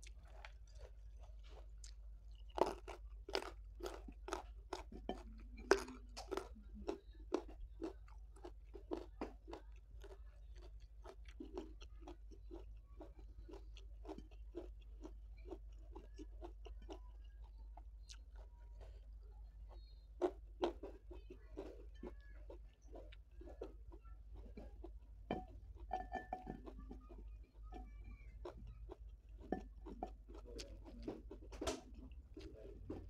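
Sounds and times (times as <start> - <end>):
chewing crunchy food: 0.0 - 33.0.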